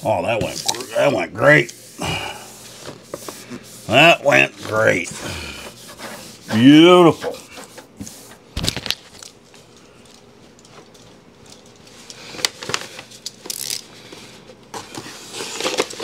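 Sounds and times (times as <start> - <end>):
hands rubbing vinyl: 0.7 - 8.5
vinyl clicks and crinkles: 7.8 - 13.8.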